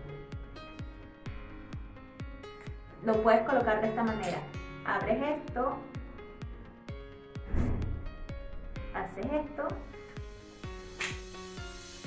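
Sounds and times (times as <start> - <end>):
kick drum beat: 0.0 - 3.9.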